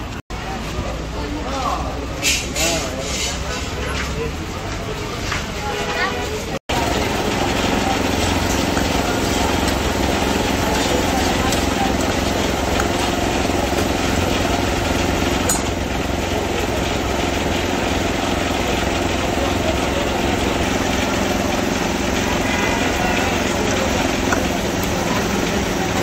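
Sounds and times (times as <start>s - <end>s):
street noise: 0.0s - 26.0s
small engine running: 6.7s - 26.0s.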